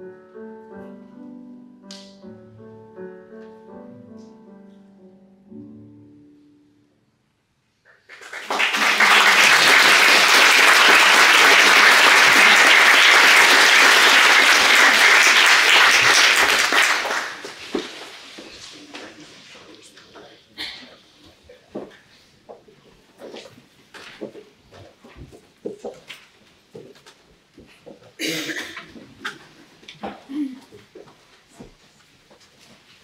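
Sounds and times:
soft piano notes: 0:00.0 - 0:07.2
audience applause: 0:07.9 - 0:18.4.

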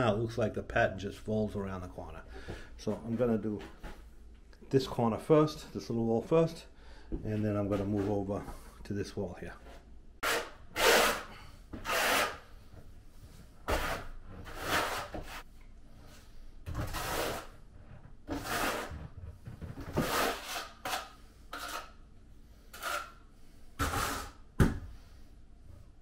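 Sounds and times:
hand tool scraping tile: 0:07.4 - 0:08.7, 0:10.2 - 0:12.5, 0:13.6 - 0:15.5, 0:16.7 - 0:17.6, 0:18.3 - 0:22.0, 0:22.6 - 0:24.4.

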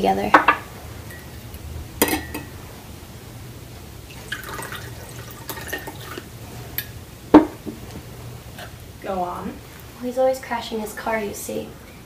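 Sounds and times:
liquid pouring into a glass: 0:04.1 - 0:06.3.

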